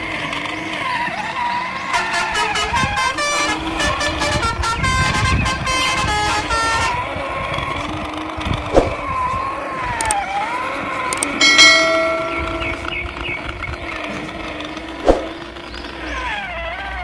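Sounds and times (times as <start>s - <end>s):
truck horn honks: 1.9s - 7.1s.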